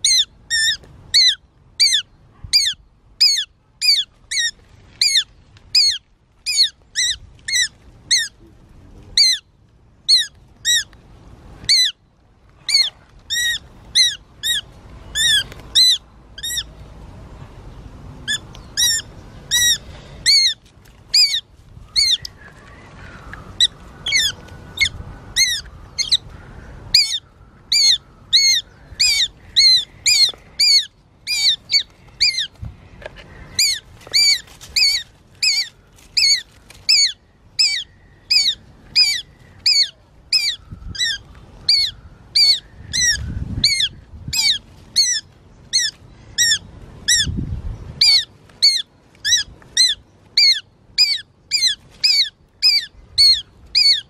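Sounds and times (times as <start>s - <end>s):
bird squawking: 9.2s - 9.5s, 12.7s - 16.7s, 18.3s - 22.3s, 22.9s - 32.5s, 33.5s - 47.3s, 48.0s - 54.0s.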